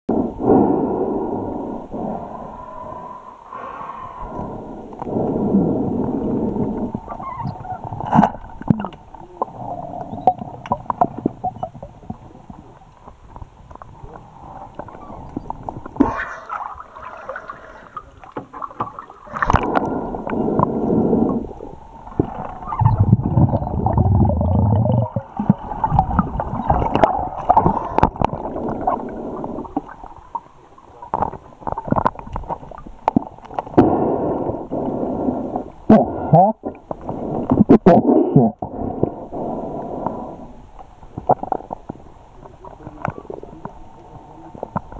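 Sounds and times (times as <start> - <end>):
diver breathing underwater: 0.1 - 7.2, 15.9 - 18.4, 19.0 - 22.7, 23.3 - 30.1, 33.7 - 40.7
exhaled bubbles gurgling: 4.2 - 44.9.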